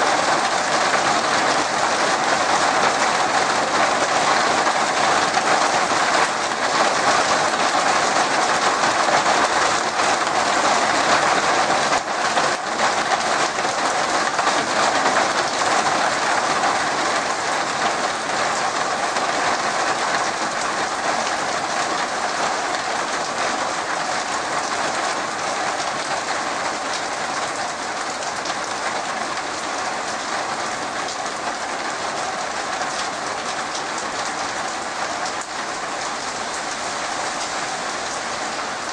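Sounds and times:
heavy rain falling: 0.0s - 38.9s.

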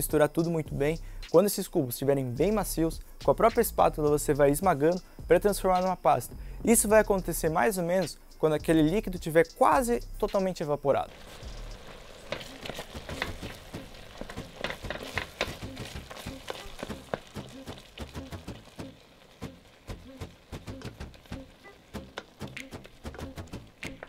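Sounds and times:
wooden spatula stirring in pot: 11.1s - 23.1s
bubbling syrup popping: 11.1s - 24.0s.

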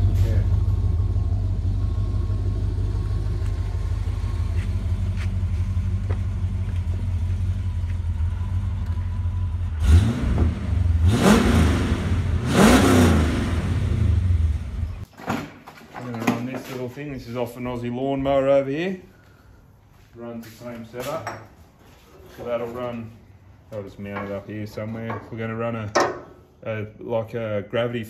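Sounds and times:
car engine idling and revving: 0.0s - 15.0s.

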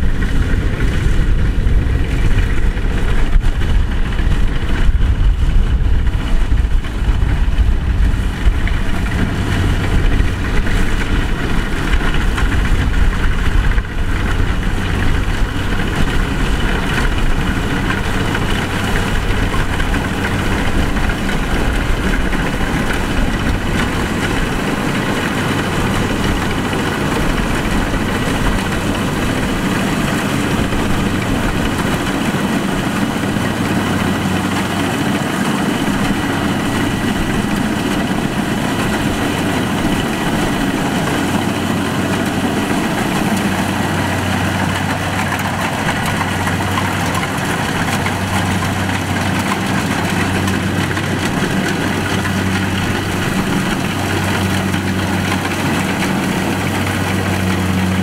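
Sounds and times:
combine harvester engine droning: 0.0s - 58.0s.

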